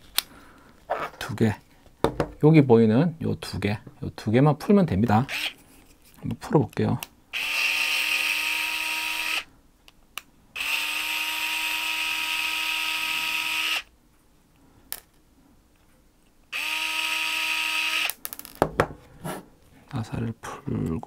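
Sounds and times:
electric screwdriver whining: 5.3 - 5.5, 7.4 - 9.4, 10.6 - 13.9, 16.5 - 18.2.

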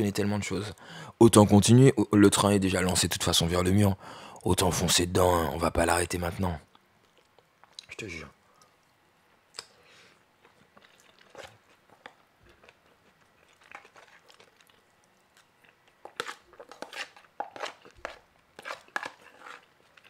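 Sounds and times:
chewing and crunching food: 6.7 - 7.9, 8.5 - 20.0
spoon scraping plastic tub: 16.0 - 19.7.

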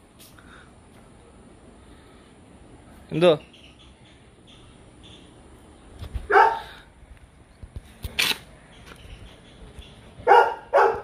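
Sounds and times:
dog barking: 6.3 - 6.7, 10.2 - 11.0.

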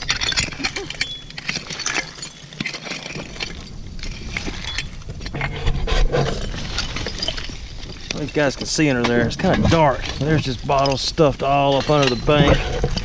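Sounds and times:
glassy pings: 0.1 - 2.4, 4.6 - 5.1
tool knocking against glass bottles: 6.7 - 13.0.

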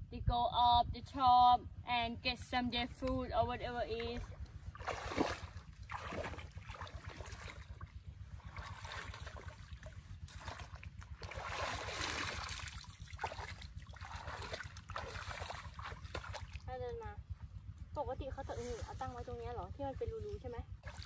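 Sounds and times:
river water splashing: 3.9 - 16.7, 20.8 - 21.0.

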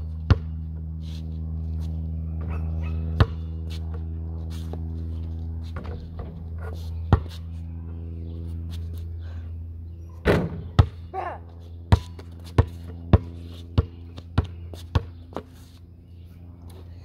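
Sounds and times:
steady low hum: 0.0 - 17.0
ball bouncing on hard ground: 0.2 - 0.6, 2.4 - 4.1, 5.6 - 7.4, 10.2 - 11.1, 11.9 - 15.6
basketball hitting hoop and backboard: 0.2 - 0.6, 2.4 - 3.5, 10.2 - 11.1, 11.9 - 15.1.

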